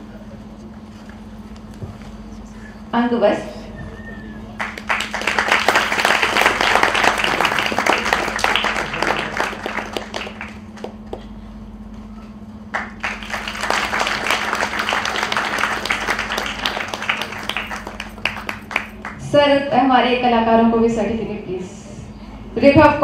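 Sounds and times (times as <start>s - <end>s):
crowd applause: 4.5s - 11.3s, 12.7s - 19.2s.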